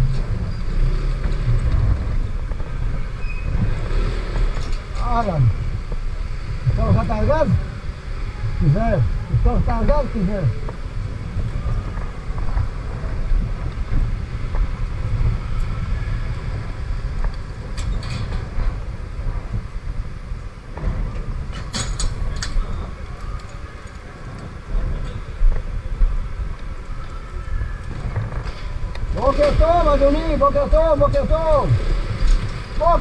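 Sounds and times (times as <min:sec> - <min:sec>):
wind noise on microphone: 0:00.0 - 0:33.0
scooter engine rumble: 0:10.5 - 0:30.8.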